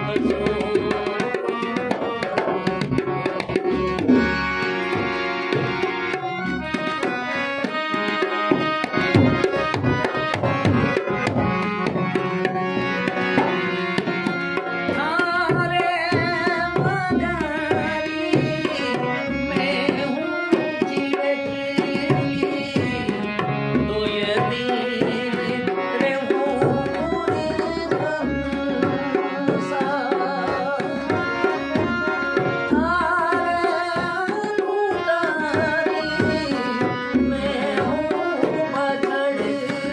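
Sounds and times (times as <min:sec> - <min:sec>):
man singing: 0:00.0 - 0:04.0, 0:14.8 - 0:39.9
hand drum rhythm: 0:00.0 - 0:39.9
harmonium held notes: 0:00.0 - 0:39.9.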